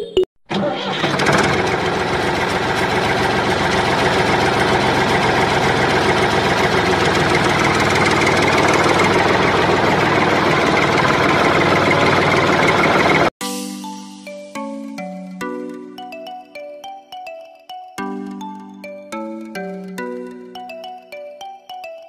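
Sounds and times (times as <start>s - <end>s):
diesel engine idling: 0.6s - 13.3s.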